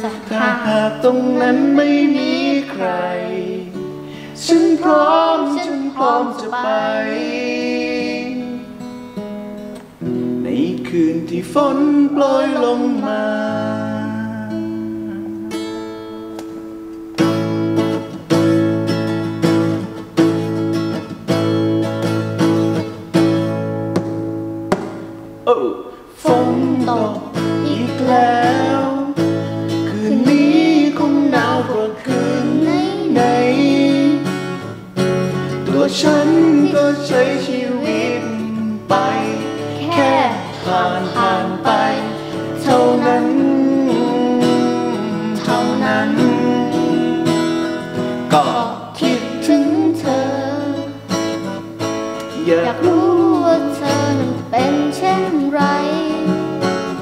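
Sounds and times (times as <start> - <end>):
man singing softly: 0.0 - 8.7, 10.4 - 15.6, 25.5 - 34.6, 35.6 - 47.7, 48.3 - 51.0, 52.4 - 56.6
acoustic guitar strumming: 0.0 - 57.0
girl singing pop ballad: 4.3 - 8.6, 26.2 - 29.2, 29.8 - 34.6, 35.7 - 47.4, 48.3 - 51.0, 52.4 - 56.8.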